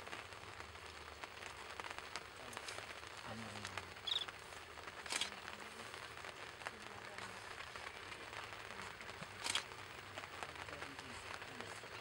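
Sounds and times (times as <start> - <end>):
high chirp: 4.0 - 4.3.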